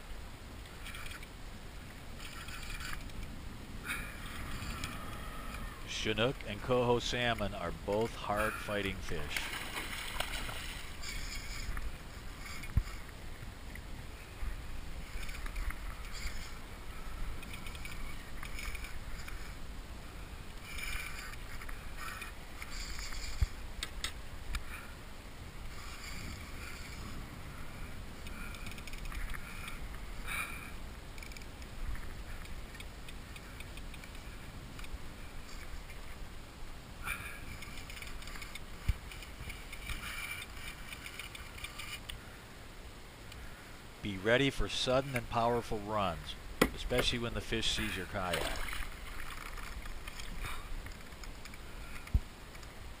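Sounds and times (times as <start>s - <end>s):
water rumbling under kayak hull: 9.4s - 17.4s.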